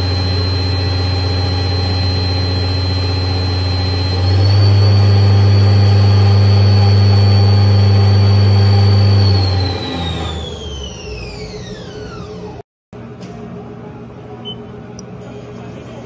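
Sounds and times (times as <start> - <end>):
lathe spindle whining: 0.0 - 12.6
low hum: 0.0 - 12.6.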